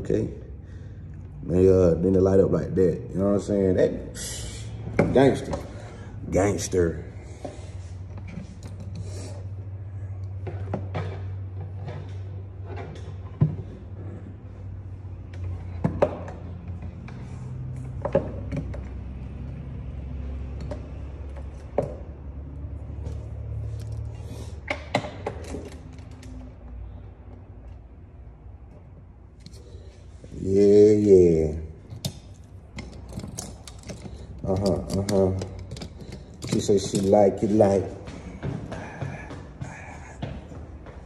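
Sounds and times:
objects being handled: 31.8s - 40.8s.

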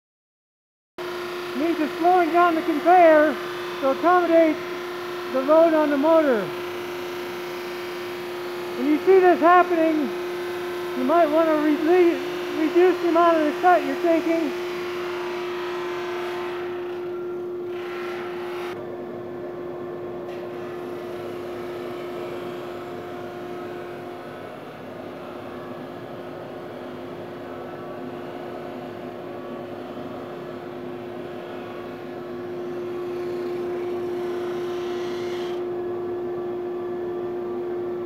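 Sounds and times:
sanding and dust extraction hiss: 1.0s - 16.6s
drum sander motor hum: 1.0s - 38.0s.

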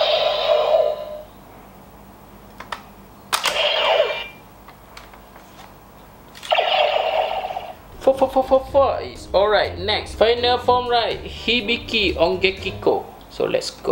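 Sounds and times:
toy electronic sound effects: 0.0s - 1.2s, 3.4s - 4.4s, 6.4s - 7.8s.

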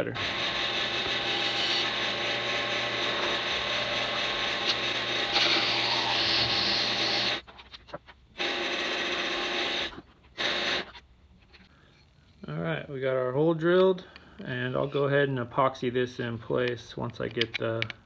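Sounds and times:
drilling into wood: 0.0s - 7.4s, 8.4s - 11.0s
wood lathe running: 0.2s - 7.4s.

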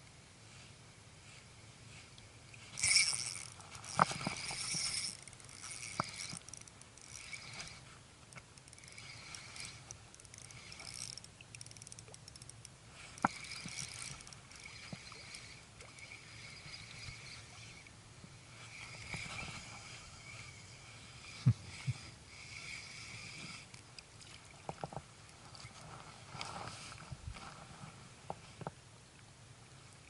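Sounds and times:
fishing reel being wound: 1.3s - 27.0s
sharp reel clicks: 2.1s - 17.9s, 18.5s - 24.1s.

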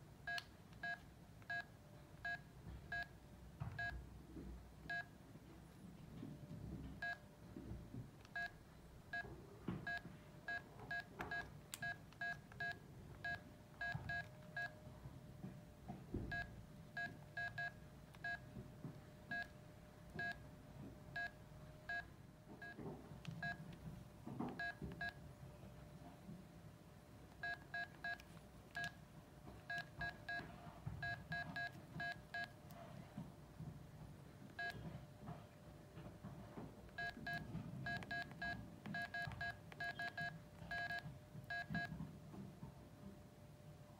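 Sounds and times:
phone keypad beeps: 9.9s - 14.8s, 27.4s - 29.0s, 34.6s - 34.9s, 37.0s - 41.9s.

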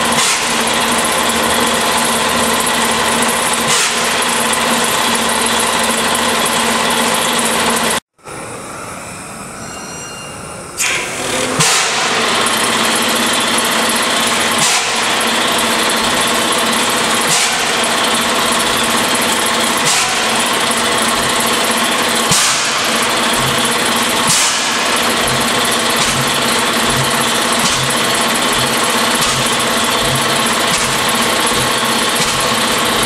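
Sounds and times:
engine puffing: 10.8s - 33.0s
propane torch roaring: 10.8s - 33.0s
low engine pulses: 11.6s - 33.0s.

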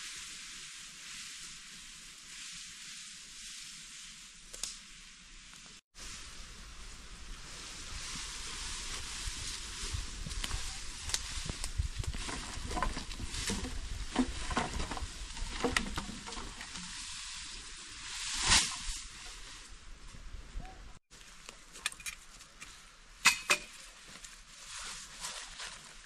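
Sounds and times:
fire crackling and popping: 4.4s - 6.9s, 7.8s - 14.3s.

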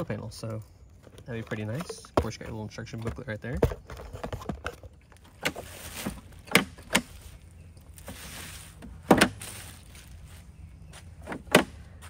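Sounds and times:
cardboard and plastic rustling: 1.0s - 11.5s
sharp clicks and knocks: 6.4s - 7.2s.

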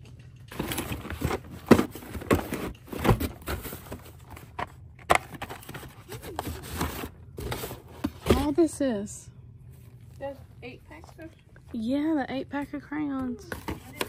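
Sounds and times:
cardboard boxes knocking and rustling: 0.5s - 8.6s.

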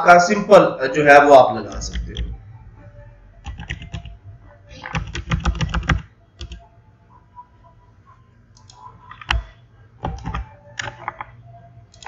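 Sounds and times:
computer keyboard keystrokes: 3.4s - 4.2s, 4.8s - 6.6s, 8.6s - 12.0s.

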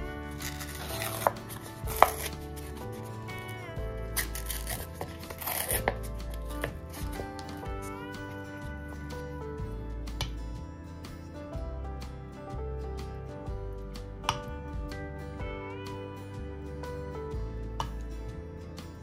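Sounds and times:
paper crinkling: 0.0s - 7.7s
light background music: 0.0s - 19.0s
paper ripping: 0.1s - 7.7s.

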